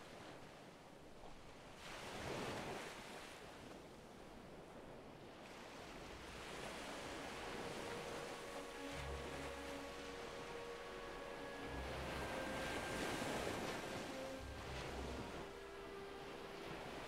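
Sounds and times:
ocean waves washing in: 5.1s - 17.0s.

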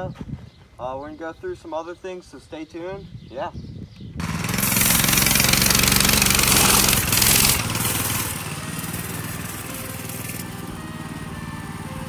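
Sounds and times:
small engine revving: 4.2s - 12.0s
tire spinning in dirt: 4.2s - 12.0s.

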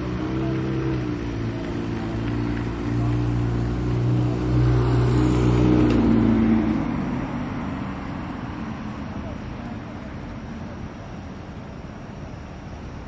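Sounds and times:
vehicle engine passing by: 0.0s - 10.2s.

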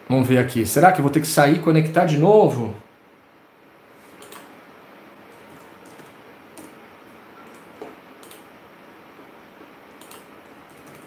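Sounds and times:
low room hiss: 0.0s - 11.0s
mouse and keyboard clicks: 4.2s - 4.5s, 7.4s - 8.5s, 9.9s - 11.0s.

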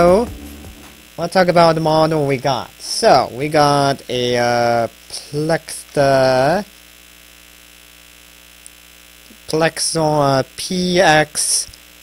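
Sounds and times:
man speaking: 0.0s - 0.4s, 1.2s - 6.7s, 9.3s - 11.7s
steady electrical hum: 0.0s - 12.0s.

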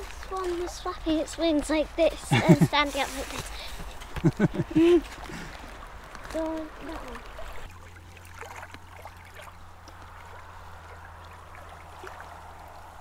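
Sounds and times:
water lapping on stony shore: 0.0s - 13.0s
small splashes: 2.7s - 13.0s.

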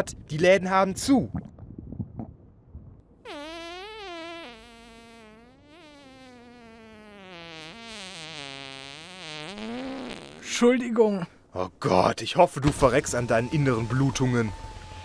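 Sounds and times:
fart sound effect: 3.2s - 10.6s.

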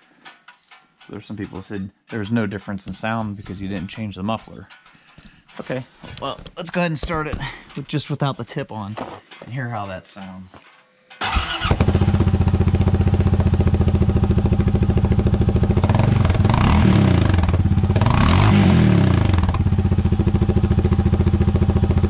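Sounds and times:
engine starter cranking: 11.0s - 12.4s
engine idling: 11.2s - 18.4s, 19.2s - 22.0s
engine revving: 11.2s - 22.0s.

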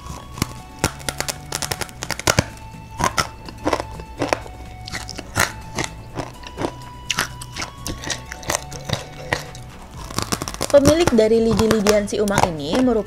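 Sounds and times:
crunchy snacks being chewed: 0.0s - 13.0s
soft background music: 0.0s - 13.0s.

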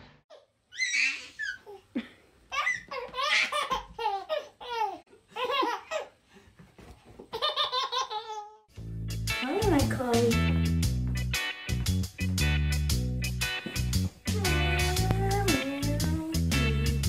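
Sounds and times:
toddler giggling: 0.3s - 6.2s, 7.2s - 8.6s.

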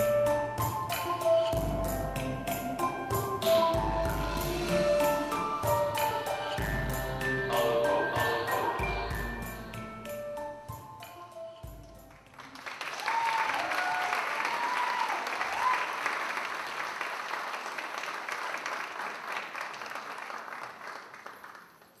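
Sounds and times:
music: 0.0s - 13.1s
audience applauding: 12.1s - 22.0s
voices whooping: 13.0s - 15.9s.

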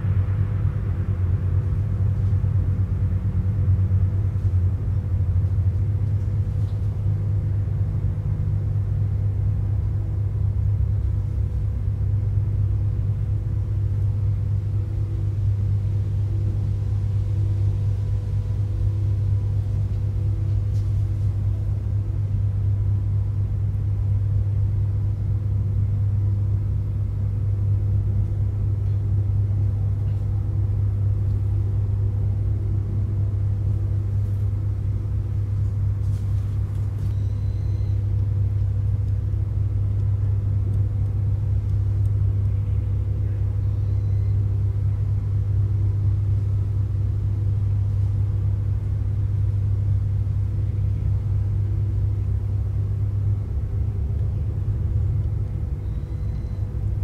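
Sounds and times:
low rumble: 0.0s - 26.2s.

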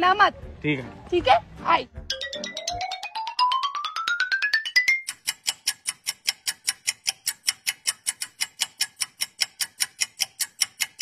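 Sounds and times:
clock ticking: 4.7s - 11.0s.

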